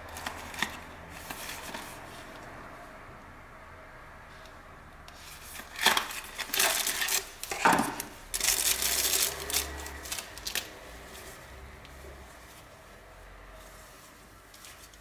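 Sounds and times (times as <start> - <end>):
scrapes and rustles: 0.1 - 2.6, 5.1 - 15.0
plastic sleeve crinkling: 5.2 - 10.8.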